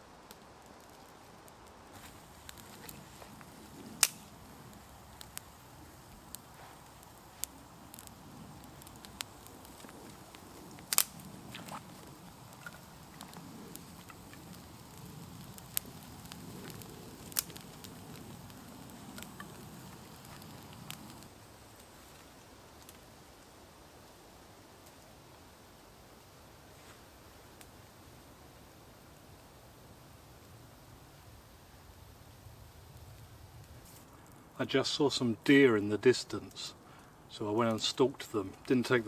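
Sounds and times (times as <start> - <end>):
campfire crackling: 0.0 - 39.0
low rush of flame: 0.0 - 39.0
sharp fire pops: 0.2 - 23.1.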